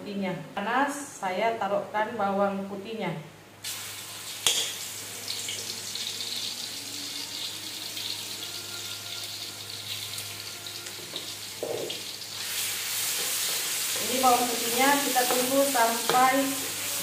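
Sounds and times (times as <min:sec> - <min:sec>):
garlic sizzling in oil: 0:03.6 - 0:17.0.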